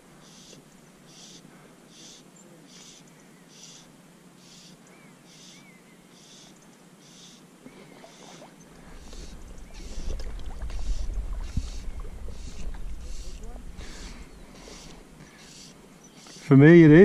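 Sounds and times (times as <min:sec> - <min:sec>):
wind buffeting microphone: 0:08.9 - 0:15.1.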